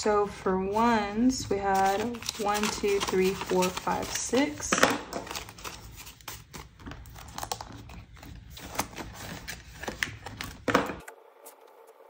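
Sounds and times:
low background hum: 0.0s - 12.0s
paper bills rustling: 1.6s - 10.6s.

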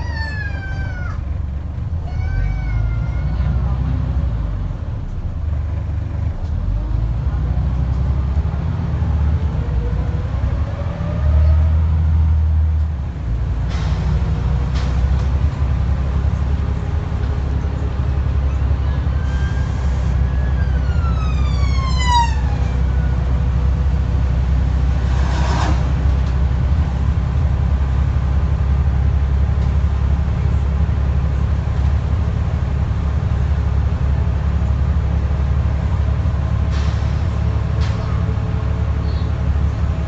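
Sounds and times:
bus engine droning: 0.0s - 40.0s
brief rush of noise: 25.0s - 26.2s.

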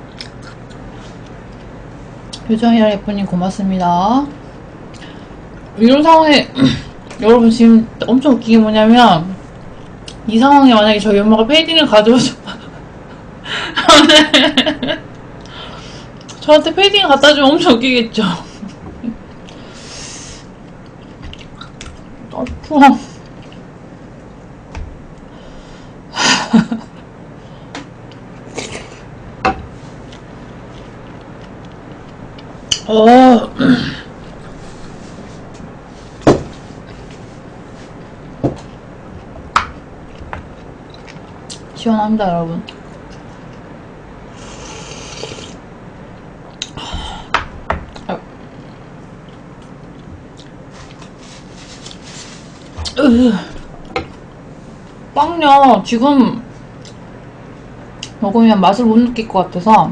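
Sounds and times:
noisy intakes of breath: 19.5s - 20.5s
slurping from cup: 44.4s - 45.6s.

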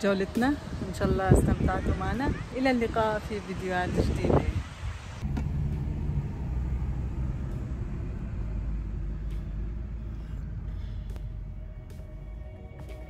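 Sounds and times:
car engine and tyre rumble: 3.4s - 13.0s.

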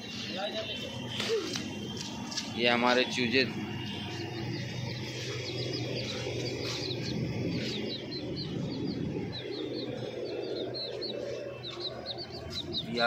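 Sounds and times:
chicks peeping: 0.2s - 13.0s
low background rumble: 3.0s - 13.0s.

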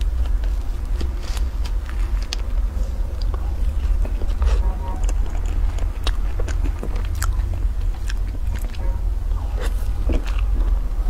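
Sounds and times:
steady low hum: 0.0s - 11.0s
wet chewing mouth clicks: 3.1s - 11.0s.

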